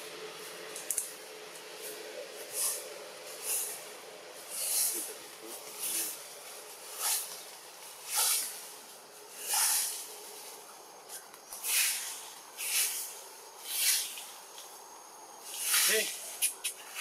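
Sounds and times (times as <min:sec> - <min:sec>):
faint steady background noise: 0:00.0 - 0:17.0
short high-pitched hiss bursts: 0:08.0 - 0:10.6, 0:11.5 - 0:14.4, 0:15.4 - 0:17.0.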